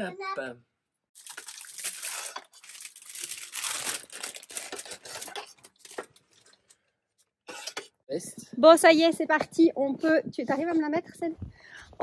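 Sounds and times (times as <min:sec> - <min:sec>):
plastic bag crinkling: 0:01.2 - 0:06.6.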